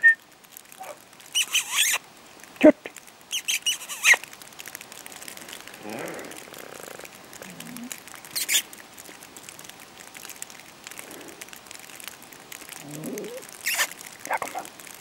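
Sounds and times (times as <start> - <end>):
plastic sheet crackling: 0.2 - 15.0
plastic rustling: 2.0 - 15.0
muffled low cry: 5.7 - 7.9.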